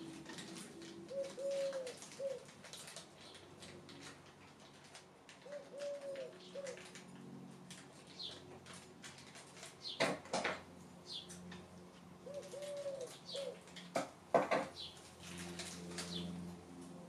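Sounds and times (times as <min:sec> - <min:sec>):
dove cooing: 0:00.0 - 0:03.4, 0:05.4 - 0:07.1, 0:12.2 - 0:13.7
plastic bag crinkling: 0:00.0 - 0:05.5.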